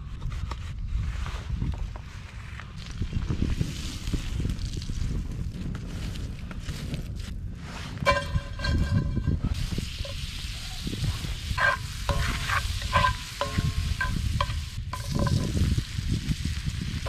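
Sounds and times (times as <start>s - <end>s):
fat sizzling in a skillet: 8.1s - 17.0s.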